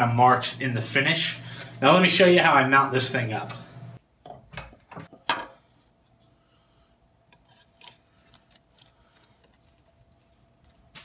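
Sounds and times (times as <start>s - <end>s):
rubbing and scraping handling: 5.0s - 11.0s.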